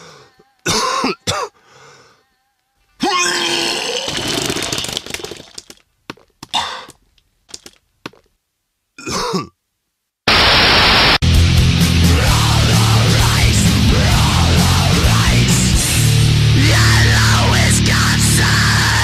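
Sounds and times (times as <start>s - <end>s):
throaty vocal noises: 3.0s - 5.6s
loud blast of noise: 10.3s - 17.6s
heavy rock-rap track: 10.3s - 19.0s.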